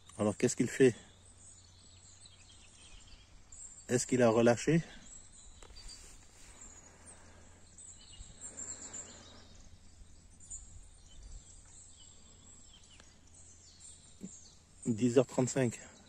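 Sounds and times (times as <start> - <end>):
distant bird chirps: 0.0 - 16.0
wind rumble on microphone: 9.6 - 11.9.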